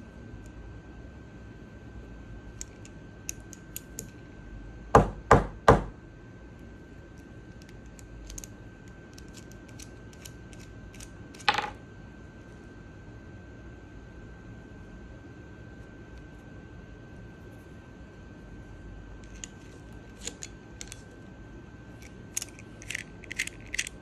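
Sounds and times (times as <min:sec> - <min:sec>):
pen clicks: 0:19.2 - 0:21.0, 0:22.3 - 0:24.0.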